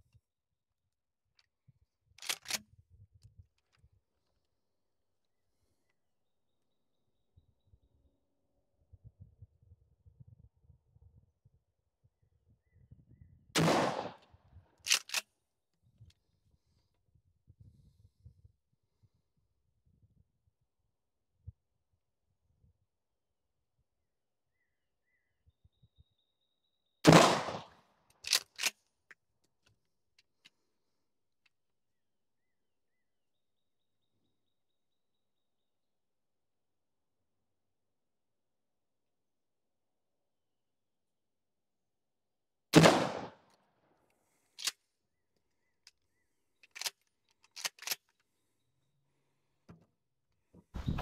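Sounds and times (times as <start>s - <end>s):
shotgun pump clacks: 2.2s - 2.6s, 14.9s - 15.2s, 28.2s - 28.8s, 46.6s - 48.1s
shotgun firing: 13.6s - 14.2s, 27.1s - 27.7s, 42.8s - 43.4s.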